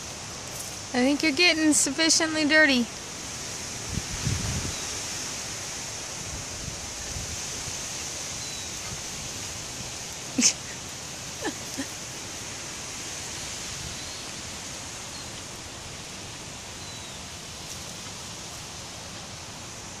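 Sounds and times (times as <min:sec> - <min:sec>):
steady outdoor hiss: 0:00.0 - 0:20.0
faint bird chirps: 0:08.3 - 0:09.0.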